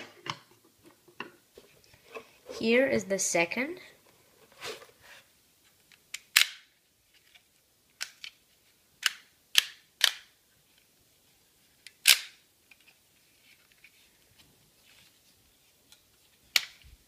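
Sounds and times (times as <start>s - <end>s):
plastic tripod clicking and snapping: 6.1s - 6.7s, 9.0s - 10.3s, 11.9s - 12.8s.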